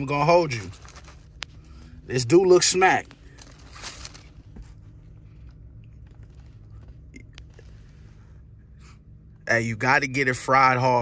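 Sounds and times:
steady low hum: 0.0 - 11.0
paper rustling: 0.4 - 1.8, 3.0 - 4.9.

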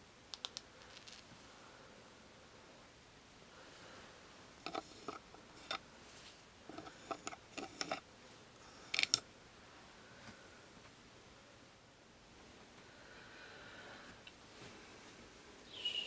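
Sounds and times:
fingernail clicks and crackles: 0.3 - 1.2.

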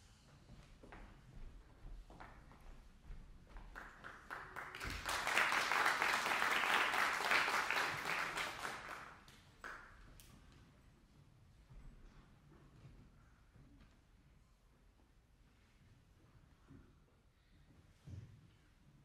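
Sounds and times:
audience applauding: 3.7 - 9.8.

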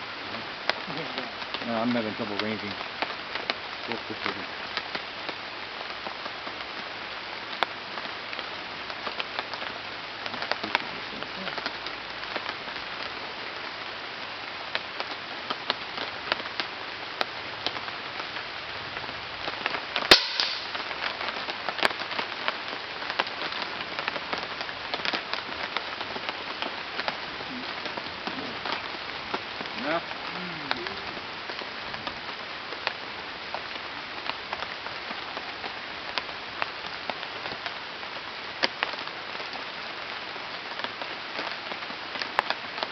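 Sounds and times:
steady hiss: 0.0 - 42.9
air rifle shot: 20.1 - 20.8.

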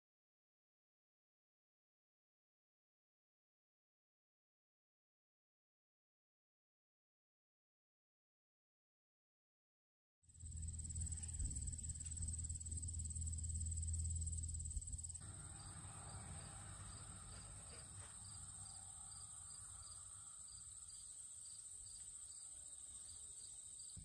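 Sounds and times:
low rumble on microphone: 10.4 - 20.4
insects trilling: 10.4 - 24.0.

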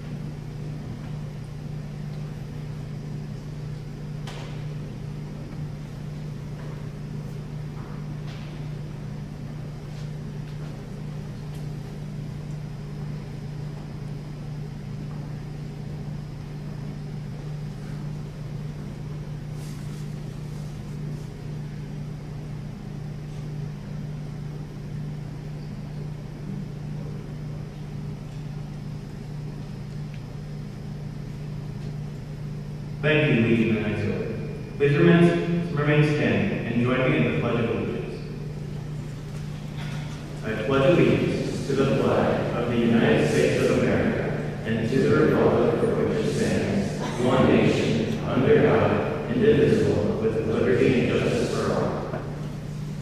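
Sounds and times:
low mechanical hum: 0.0 - 53.0
faint knocks and shuffles: 9.7 - 12.0, 19.4 - 21.4.

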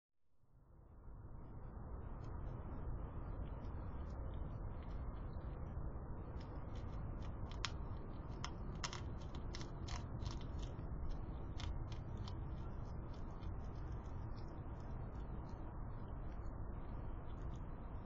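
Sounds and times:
hedgehog crunching dry food: 6.3 - 16.4.

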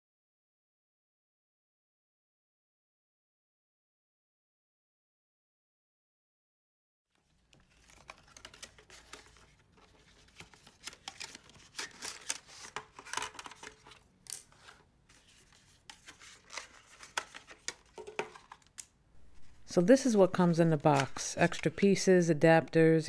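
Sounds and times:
plastic packaging scraping and rustling: 7.2 - 19.7.

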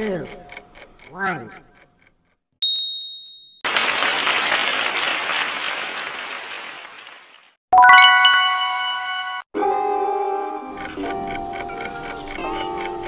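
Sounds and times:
applause: 3.6 - 8.5
bright bell-like chime: 7.8 - 9.5.

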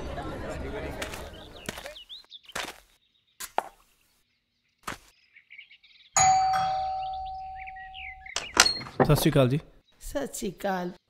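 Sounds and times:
footsteps: 0.9 - 4.0
birds chirping faintly: 0.9 - 11.0
doorbell ding: 6.2 - 8.1.

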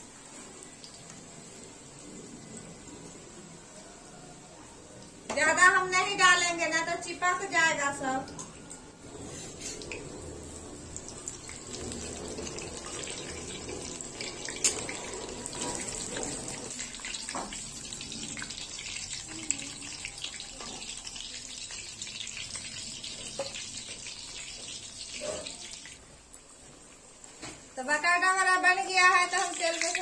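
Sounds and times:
food sizzling in hot oil: 9.0 - 26.1, 27.8 - 30.0.

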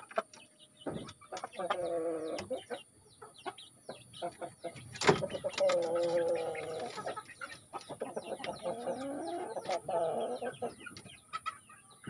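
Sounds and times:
young chickens calling: 0.0 - 12.0.

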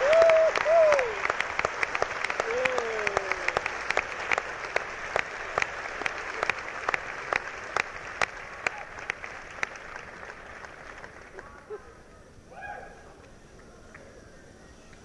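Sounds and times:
audience applauding: 0.0 - 11.8.

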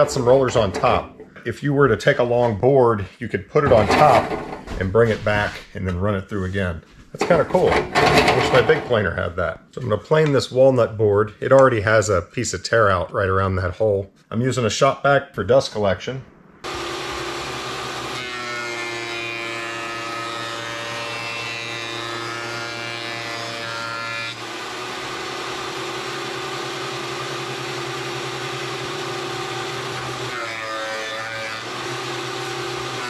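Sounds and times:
shop vacuum running: 0.0 - 4.6, 7.2 - 9.0, 16.6 - 33.0
thickness planer running: 3.6 - 4.6, 7.2 - 8.9, 16.6 - 33.0.

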